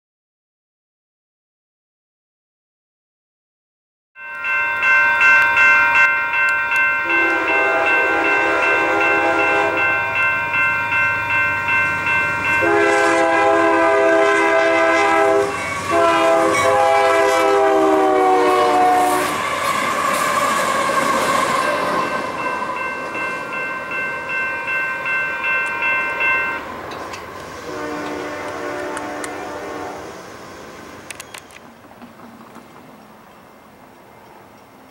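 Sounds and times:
railroad crossing bell ringing: 4.2s - 29.9s, 33.0s - 34.9s
train rumbling by: 4.4s - 34.9s
locomotive air horn blasts: 7.0s - 10.0s, 12.4s - 22.0s, 27.6s - 30.2s.

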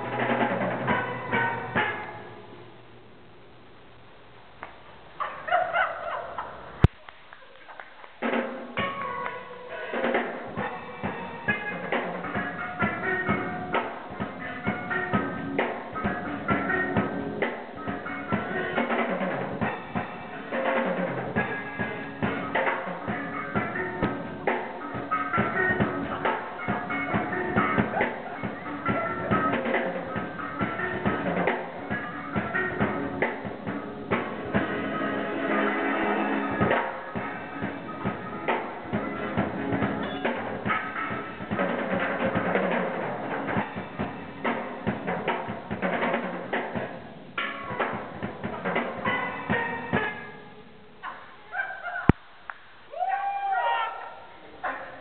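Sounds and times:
steel pans playing: 0.0s - 3.0s, 8.2s - 46.6s.

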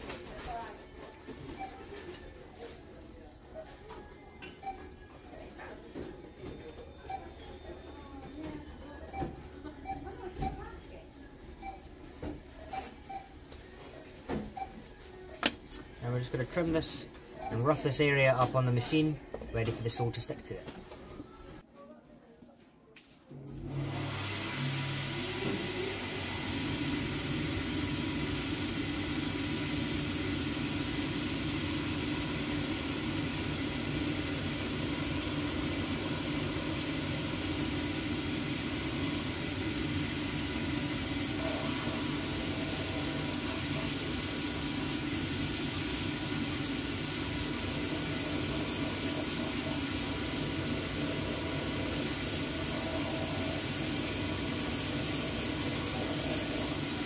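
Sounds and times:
shoe finishing machine running: 23.7s - 57.0s.

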